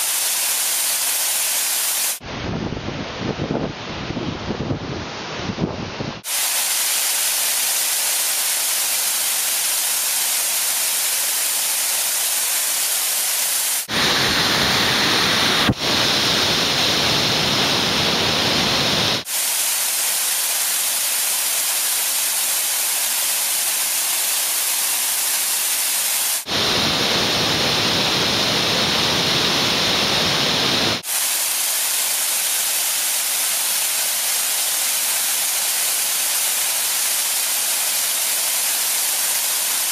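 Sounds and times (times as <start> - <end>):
waterfall rushing: 0.0 - 2.2, 6.2 - 39.9.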